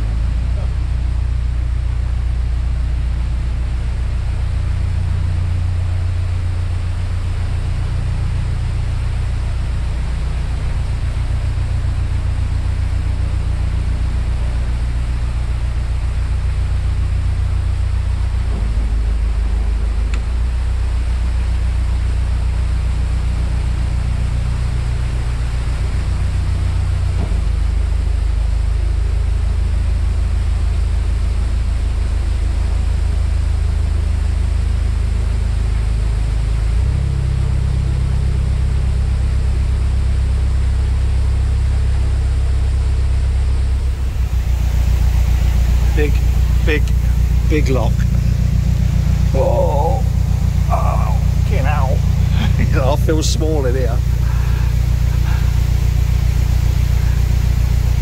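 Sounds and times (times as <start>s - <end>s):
boat engine running: 0.0s - 58.0s.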